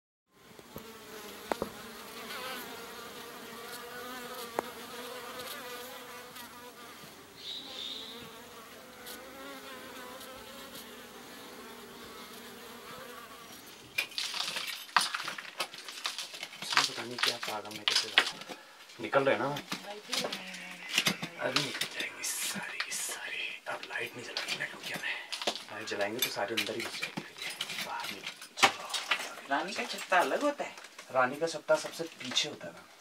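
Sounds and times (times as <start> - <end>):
honeybees buzzing: 0.4 - 14.5.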